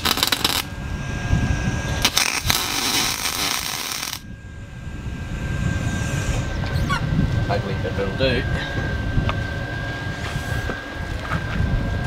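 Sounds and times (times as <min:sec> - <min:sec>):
welding arc crackling hiss: 0:00.0 - 0:00.7, 0:02.0 - 0:04.2.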